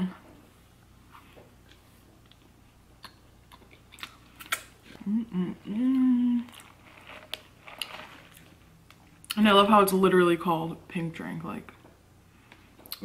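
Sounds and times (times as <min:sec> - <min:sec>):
wet mouth clicks and lip smacks: 0:02.2 - 0:04.7.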